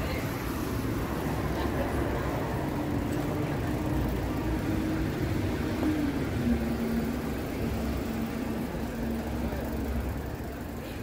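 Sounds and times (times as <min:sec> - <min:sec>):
faint engine hum: 0:00.0 - 0:11.0
motor vehicle rumble: 0:00.0 - 0:11.0
street traffic: 0:00.0 - 0:11.0.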